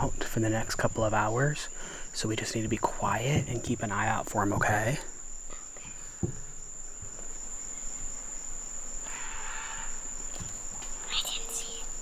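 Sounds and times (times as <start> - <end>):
insects droning: 0.0 - 12.0
soft knock: 6.2 - 6.5.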